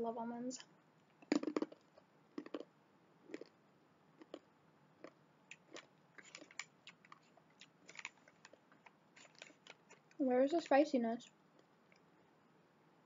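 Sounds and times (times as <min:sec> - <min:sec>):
crisp crunches of chewing: 0:01.2 - 0:02.7, 0:03.3 - 0:03.6, 0:04.2 - 0:10.2.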